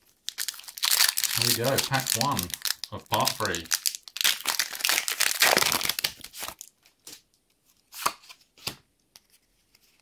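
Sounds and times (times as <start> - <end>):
foil wrapper crinkling and tearing: 0.0 - 6.7
cards rustling: 0.4 - 7.2.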